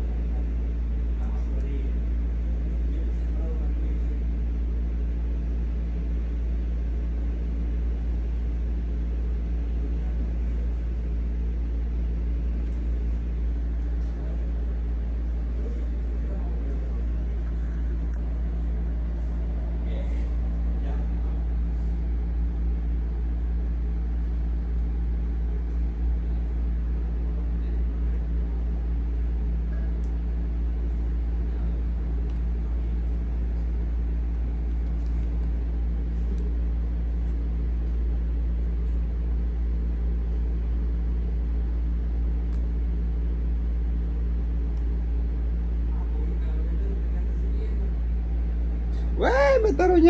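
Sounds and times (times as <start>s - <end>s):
low mechanical hum: 0.0s - 50.0s.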